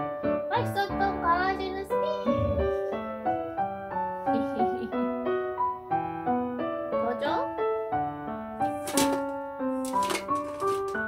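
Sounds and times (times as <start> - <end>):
gentle piano waltz: 0.0 - 11.0
brief voice-like sound: 2.3 - 2.8.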